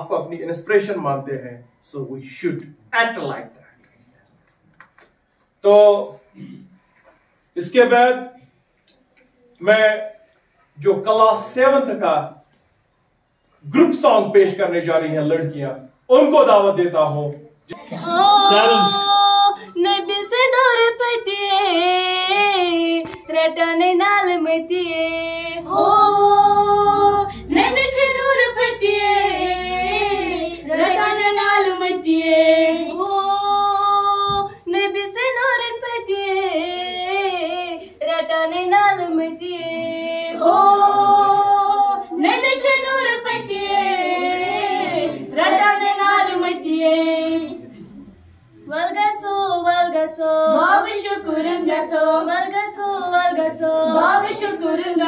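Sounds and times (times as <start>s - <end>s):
girls singing unaccompanied: 17.7s - 47.9s, 48.6s - 55.0s.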